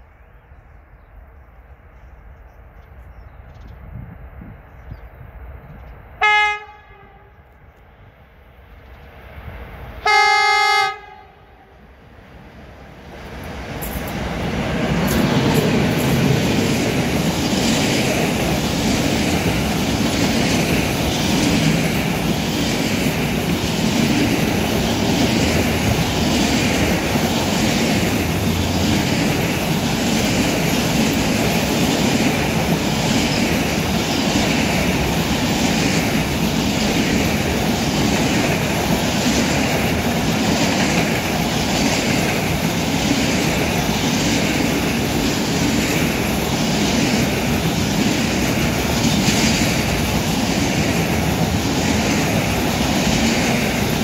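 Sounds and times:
freight train passing: 0:00.0 - 0:54.0
locomotive horn blasts: 0:06.2 - 0:07.4, 0:10.0 - 0:11.6
wheels clacking on rails: 0:12.8 - 0:54.0.

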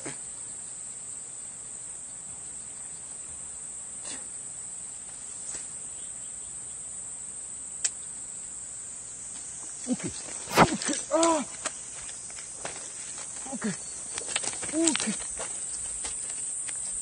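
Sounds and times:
insects trilling: 0:00.0 - 0:17.0
man's wordless exclamations: 0:11.1 - 0:11.5.

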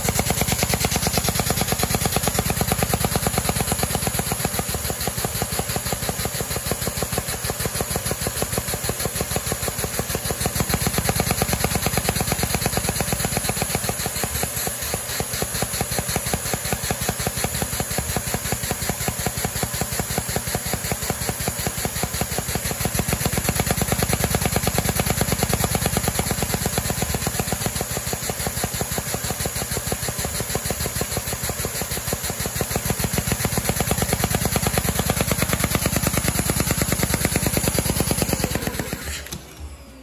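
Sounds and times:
vacuum cleaner suction: 0:34.4 - 0:40.0.

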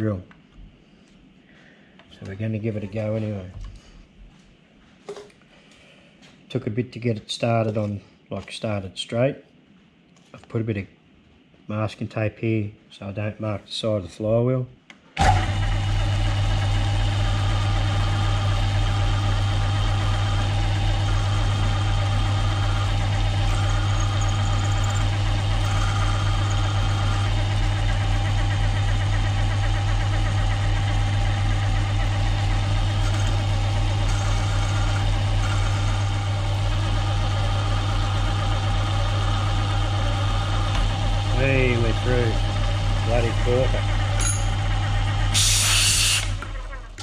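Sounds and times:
milling machine drilling steel: 0:19.9 - 0:29.2, 0:32.0 - 0:47.0.

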